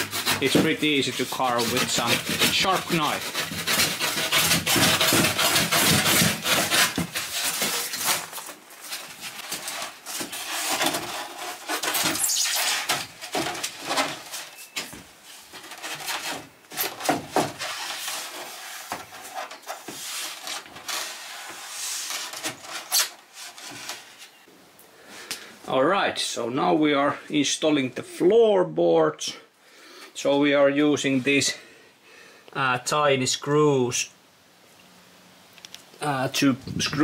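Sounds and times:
foam board scraping: 0:00.0 - 0:24.5.

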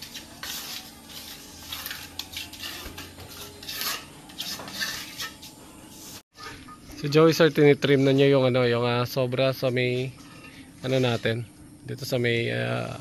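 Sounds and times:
trowel scraping cement mortar: 0:00.0 - 0:06.2, 0:10.0 - 0:11.4.

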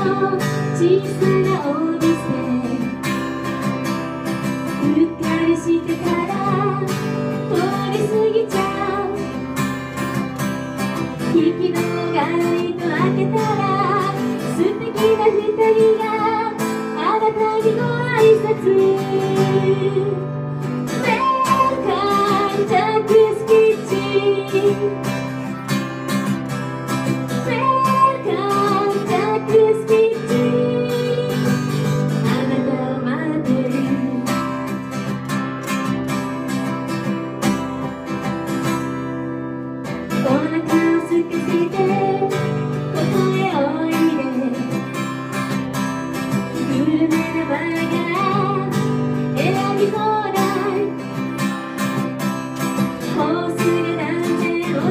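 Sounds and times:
woman singing into microphone: 0:00.0 - 0:03.3, 0:04.7 - 0:09.6, 0:11.2 - 0:25.4, 0:27.3 - 0:34.7, 0:40.1 - 0:45.3, 0:46.3 - 0:51.5, 0:53.0 - 0:54.9
strummed acoustic guitar: 0:00.0 - 0:54.9.

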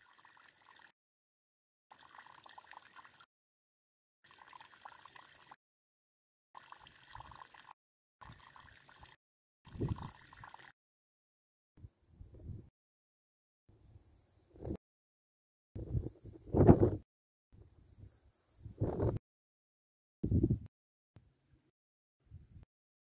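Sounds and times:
trickling gurgling water: 0:00.0 - 0:00.9, 0:01.9 - 0:03.3, 0:04.3 - 0:05.6, 0:06.6 - 0:10.7.

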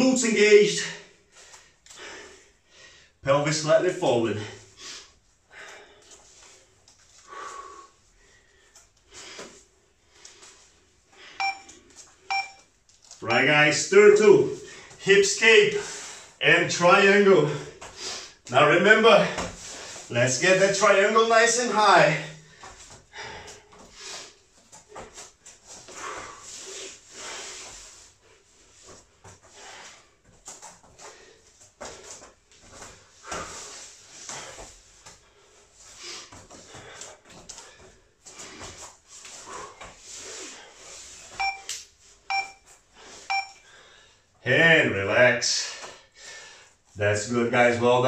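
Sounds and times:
man breathing heavily: 0:00.9 - 0:03.2, 0:04.3 - 0:11.4, 0:15.7 - 0:16.4, 0:17.4 - 0:18.5, 0:19.3 - 0:20.1, 0:22.1 - 0:41.3, 0:42.8 - 0:44.4, 0:45.5 - 0:47.0.

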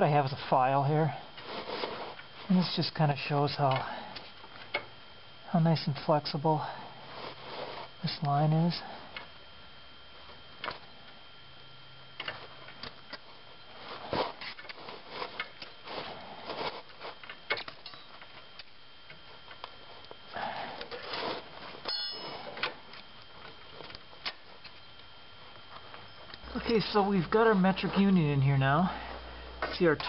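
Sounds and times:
short metallic ring: 0:21.9 - 0:22.5.

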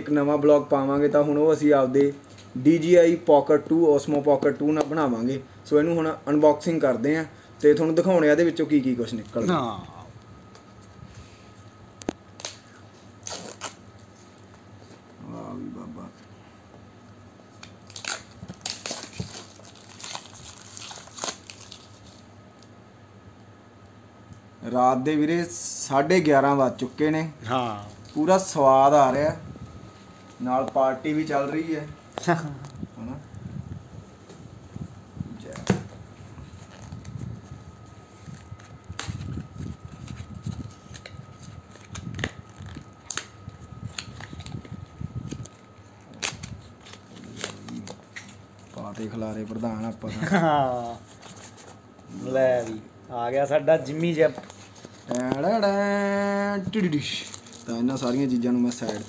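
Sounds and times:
packaging crinkling: 0:17.6 - 0:22.3, 0:36.4 - 0:49.6, 0:56.8 - 0:59.0.

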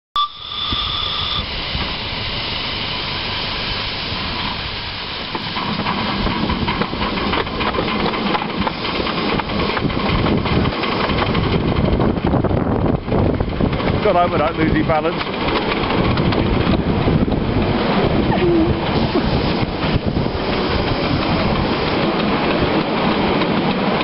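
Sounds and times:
brief high tone: 0:00.2 - 0:01.5
steam hissing: 0:00.2 - 0:11.9, 0:17.6 - 0:23.3
locomotive chuffing and rumbling: 0:00.5 - 0:24.0.

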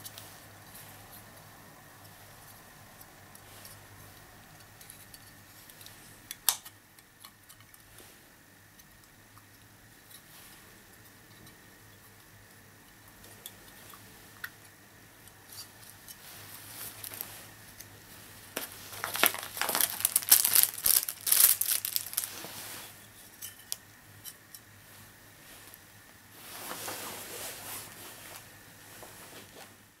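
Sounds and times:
plastic bag crinkling: 0:16.6 - 0:17.4, 0:18.6 - 0:22.7.

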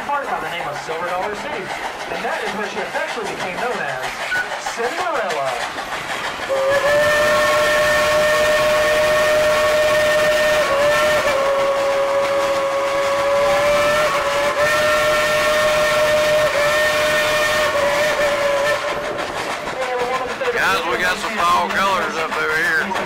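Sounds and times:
steam locomotive whistle blast: 0:06.5 - 0:19.2.

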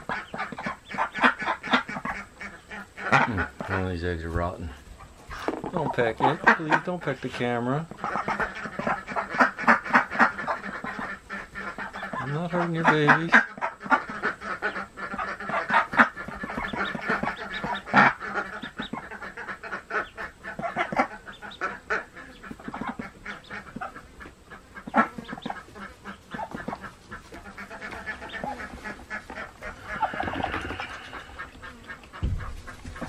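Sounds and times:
duck quacking harshly: 0:00.0 - 0:03.8, 0:07.9 - 0:33.0
ducklings peeping: 0:00.0 - 0:33.0.

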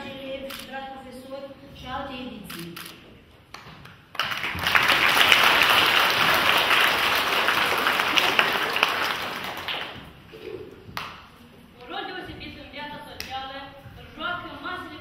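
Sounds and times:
audience applause: 0:04.2 - 0:10.1.

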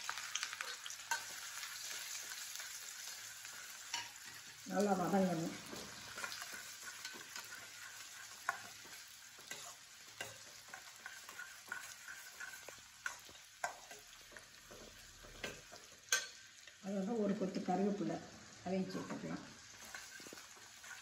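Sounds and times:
onions sizzling in oil: 0:00.0 - 0:21.0
metal spoon scraping pan: 0:06.0 - 0:16.4, 0:19.8 - 0:21.0.

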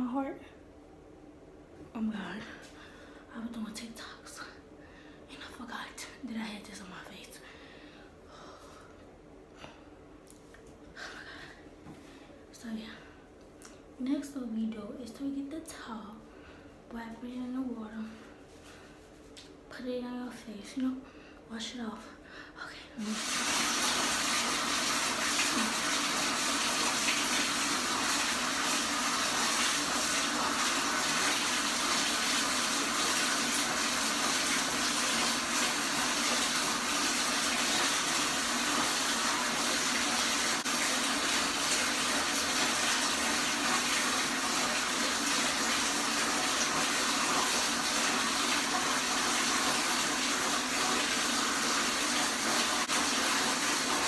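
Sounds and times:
water running from a tap: 0:23.0 - 0:54.0.

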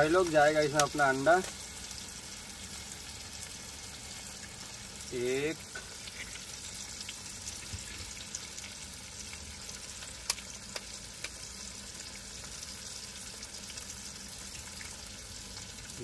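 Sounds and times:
food sizzling in oil: 0:00.0 - 0:16.0.

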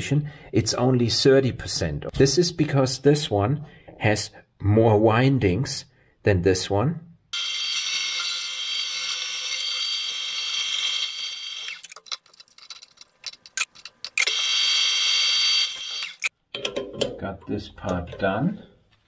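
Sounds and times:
power tool high-pitched whine: 0:07.4 - 0:11.9, 0:14.2 - 0:16.3
sharp clicks and knocks: 0:16.1 - 0:18.3.

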